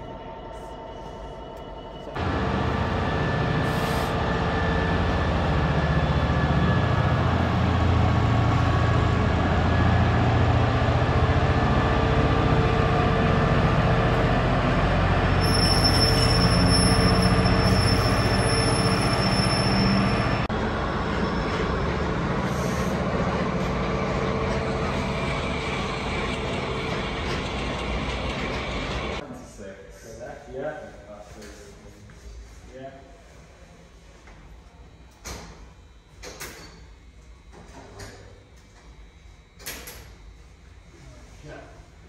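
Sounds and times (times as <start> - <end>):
diesel locomotive engine: 0.0 - 29.2
high wheel squeal: 15.2 - 23.0.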